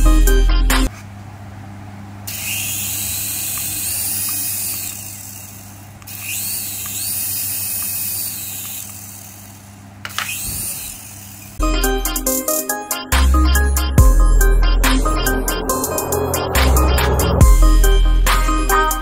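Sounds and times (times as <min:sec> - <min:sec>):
toy helicopter rotor motors whirring: 0:02.3 - 0:11.6.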